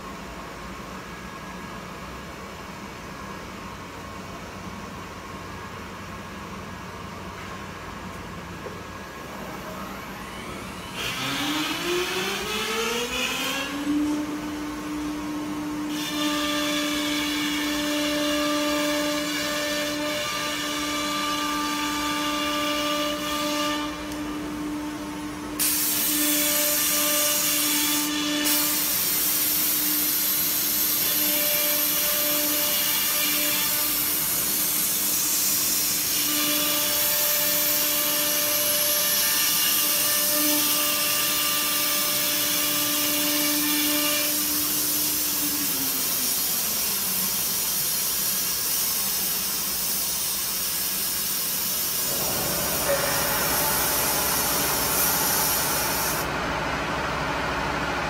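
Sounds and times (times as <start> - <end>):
router spindle whine: 9.0 - 25.4, 51.8 - 56.8
hiss of wood cutting: 25.6 - 56.3.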